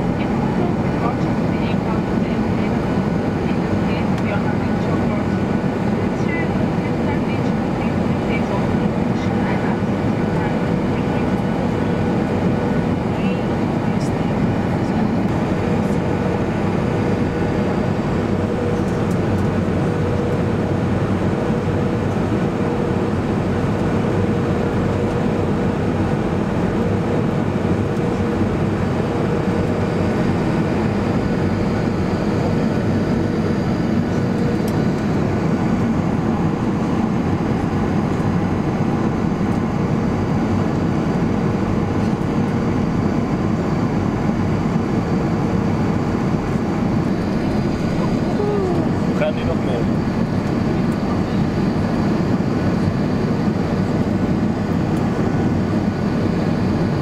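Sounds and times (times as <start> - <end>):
aircraft cabin jet engine rush: 0.0 - 57.0.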